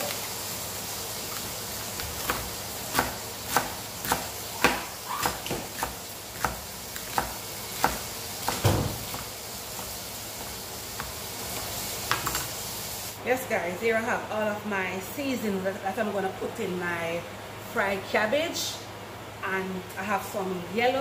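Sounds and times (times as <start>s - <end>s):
knife chopping on plastic board: 2.0s - 9.9s.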